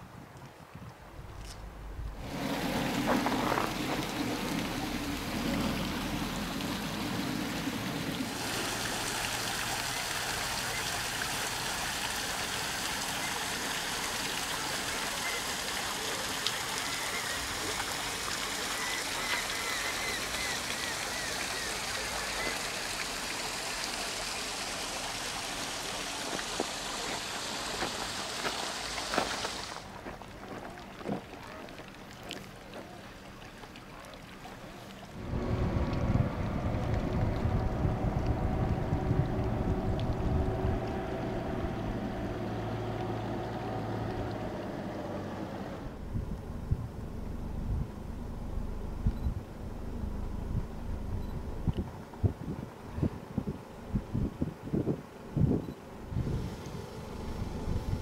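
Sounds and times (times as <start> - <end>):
rushing running water: 1.2 - 46.0.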